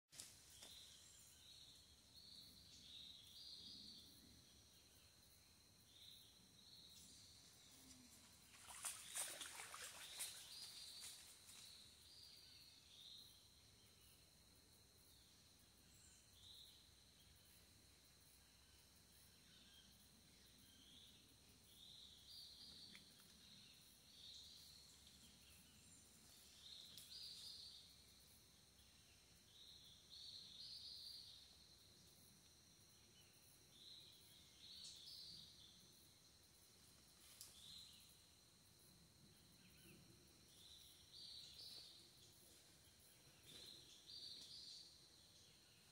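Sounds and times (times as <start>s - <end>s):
rustling or splash: 8.0s - 11.8s.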